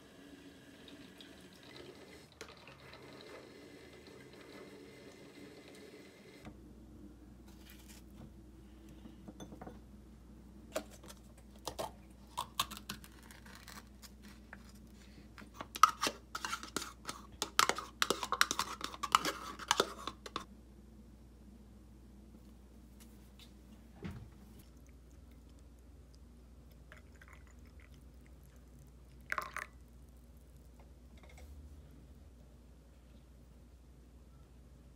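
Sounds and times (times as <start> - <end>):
dishes and utensils clinking: 9.0 - 9.8.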